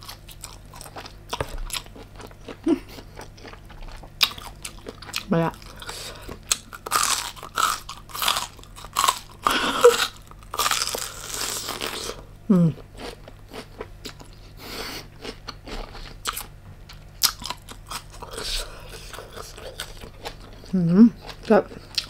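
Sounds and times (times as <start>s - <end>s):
wet chewing: 0.0s - 12.2s, 15.2s - 22.0s
crunchy bites: 6.4s - 12.2s.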